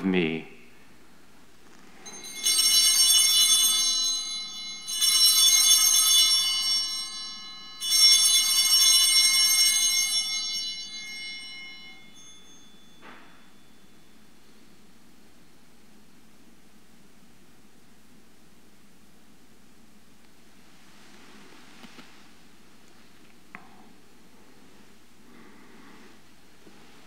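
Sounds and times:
altar bells ringing: 2.0 - 14.6.

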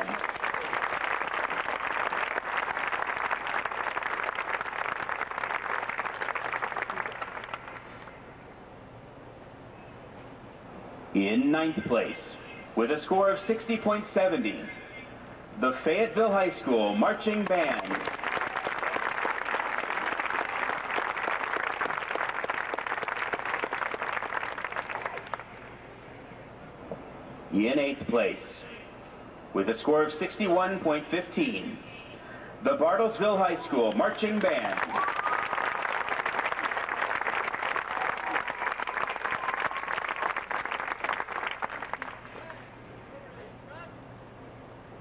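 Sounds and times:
crowd clapping: 0.0 - 8.2, 17.3 - 25.8, 33.8 - 42.7.

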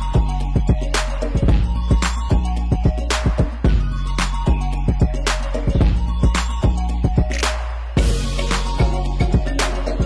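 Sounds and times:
deep bass line: 0.0 - 10.0
steady drum beat: 0.2 - 3.8, 8.0 - 10.0.

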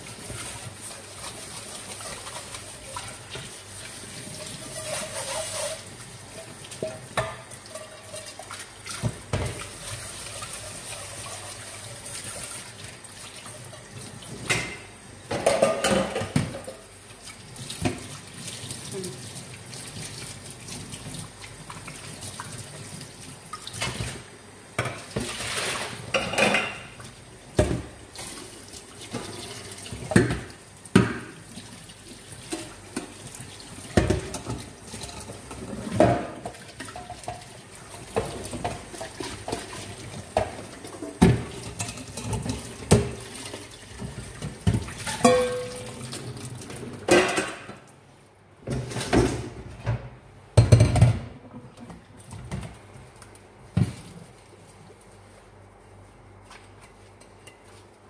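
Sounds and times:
metal pots clanking: 14.5 - 16.9, 26.1 - 27.0, 44.0 - 46.1, 47.0 - 47.8
tap water running into sink: 26.4 - 47.1.

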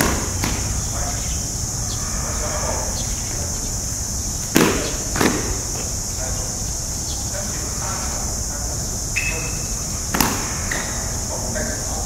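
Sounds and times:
cicadas droning: 0.0 - 12.0
sharp sparring impacts: 4.5 - 5.6, 10.1 - 10.8.

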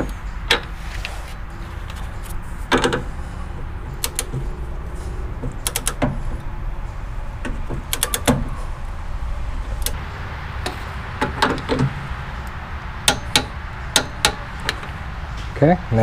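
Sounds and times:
low steady hum: 0.0 - 16.0
torque wrench ratcheting clicks: 5.6 - 6.0.

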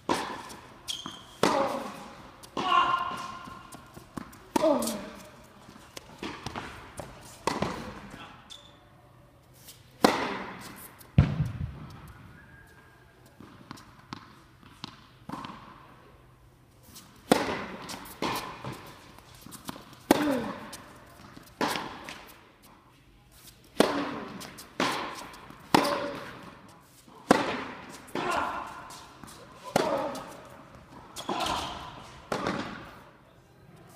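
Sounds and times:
tennis ball hit by racket: 0.1 - 0.6, 1.4 - 5.1, 6.0 - 8.0, 10.0 - 12.1, 17.2 - 22.3, 23.8 - 26.6, 27.2 - 33.0
tennis ball bouncing on hard court: 0.1 - 5.0, 6.0 - 8.1, 10.0 - 12.2, 13.4 - 15.7, 17.2 - 22.3, 23.8 - 26.6, 27.2 - 33.0.

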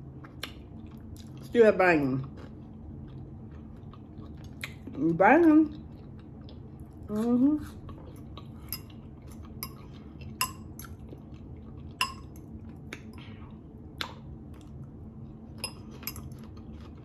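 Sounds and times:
steady low hum: 0.0 - 17.0
fork clinking against glass bowl: 12.0 - 12.3, 15.6 - 16.4.

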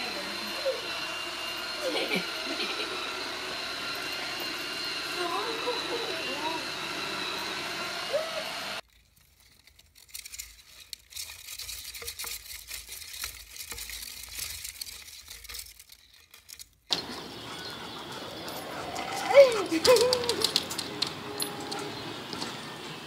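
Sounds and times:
robot vacuum whine: 0.0 - 8.8, 16.9 - 23.0.

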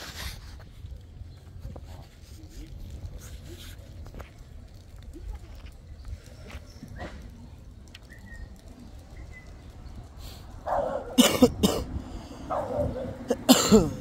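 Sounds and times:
dog barking: 10.6 - 11.2, 12.5 - 13.4.

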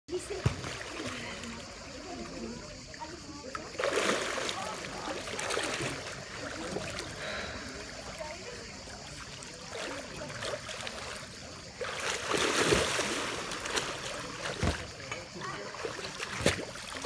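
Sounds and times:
pool water sloshing: 0.1 - 17.0
person plunging into water: 3.6 - 8.2, 11.7 - 17.0.

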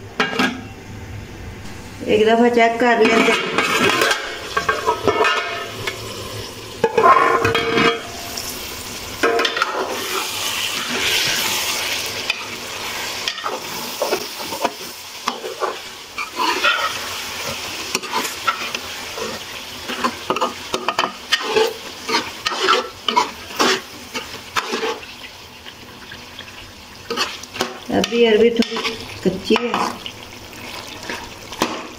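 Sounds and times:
frying sizzle: 0.0 - 31.9
metal pot lid clank: 0.2 - 0.7, 3.0 - 6.0, 6.8 - 8.2
metal spatula scraping a pot: 3.0 - 6.1, 6.8 - 8.5, 9.2 - 25.3, 26.4 - 31.9.

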